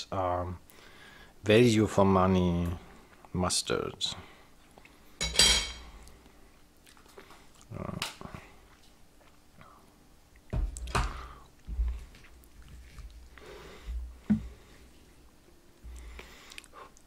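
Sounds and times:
cutlery clattering on a plate: 0:05.2 - 0:05.8.

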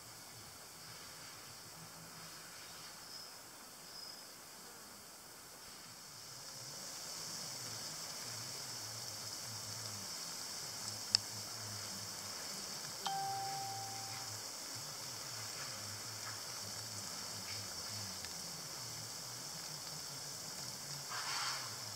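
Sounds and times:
high-pitched outdoor hiss: 0:00.0 - 0:21.9
faint low hum: 0:13.0 - 0:14.5.

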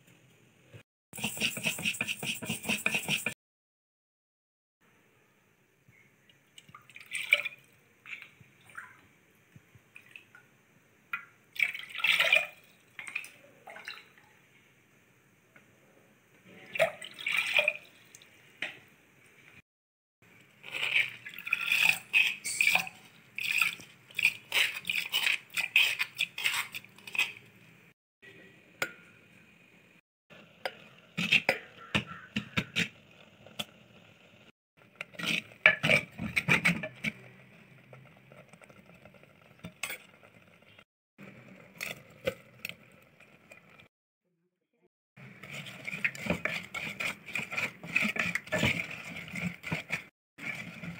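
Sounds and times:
spoon scraping a pot: 0:01.2 - 0:03.4, 0:20.6 - 0:23.1, 0:24.2 - 0:27.5, 0:45.3 - 0:50.9
water sloshing in a pot: 0:06.4 - 0:10.5, 0:11.1 - 0:14.5, 0:16.5 - 0:18.8, 0:20.5 - 0:27.6, 0:45.2 - 0:50.9.

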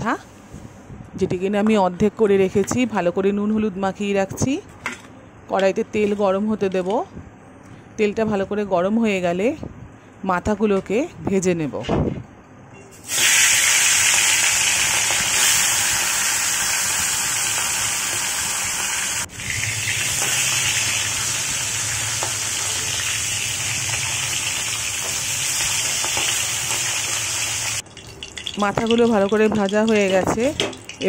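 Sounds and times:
fish frying in hot oil: 0:13.1 - 0:31.0.

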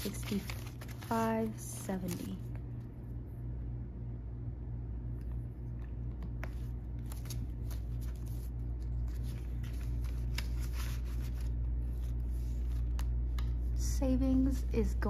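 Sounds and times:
paper banknotes rustling: 0:00.0 - 0:02.6, 0:06.2 - 0:13.2
steady low hum: 0:00.0 - 0:15.0.

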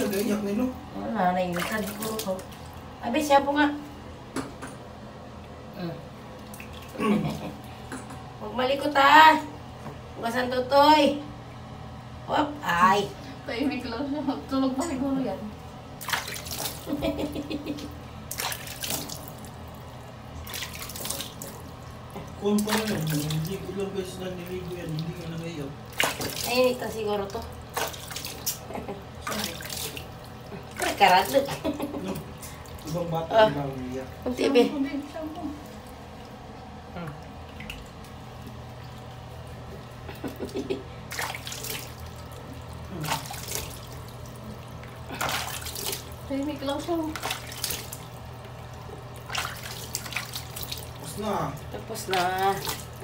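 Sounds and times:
water splashing in plastic basin: 0:01.4 - 0:02.9, 0:16.0 - 0:36.4, 0:37.0 - 0:53.0.

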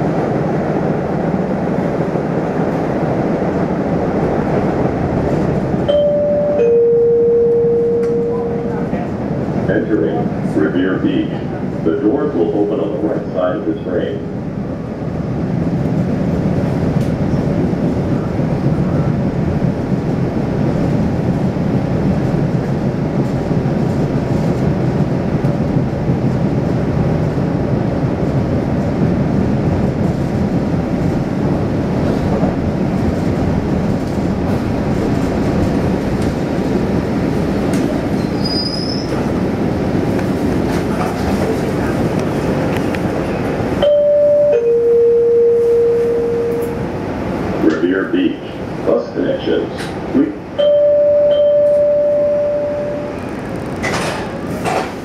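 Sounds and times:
train wheels rumbling on track: 0:00.0 - 0:55.0
high wheel squeal: 0:38.2 - 0:39.2.

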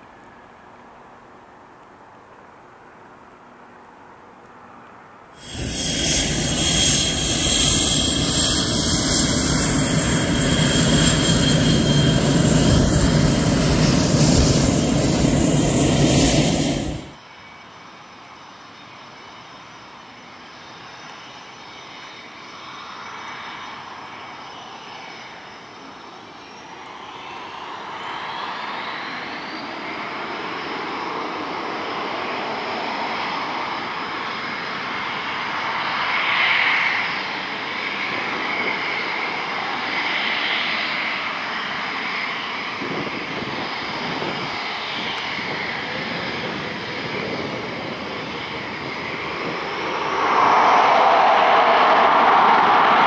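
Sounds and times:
high jet engine whines: 0:00.0 - 0:53.0
jet engines roaring: 0:05.4 - 0:17.2, 0:26.8 - 0:53.0.

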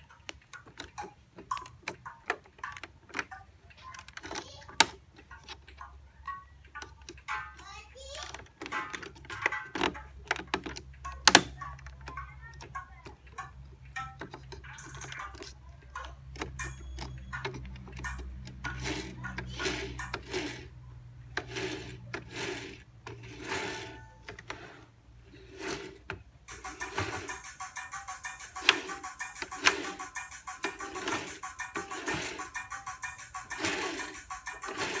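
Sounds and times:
jog wheel rubbing and scraping: 0:12.0 - 0:35.0.

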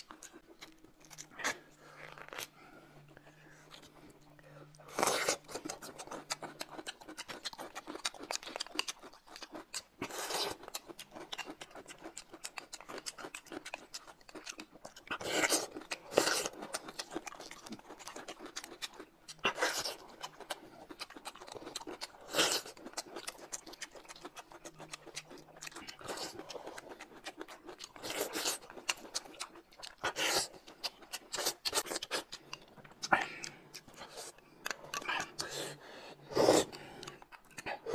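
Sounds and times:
wet chewing and lip smacking: 0:00.0 - 0:37.9
slurping soup: 0:34.0 - 0:37.9.

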